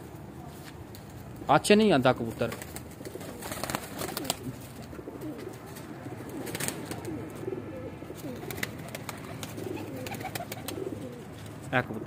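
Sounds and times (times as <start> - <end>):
pigeons cooing: 2.6 - 12.0.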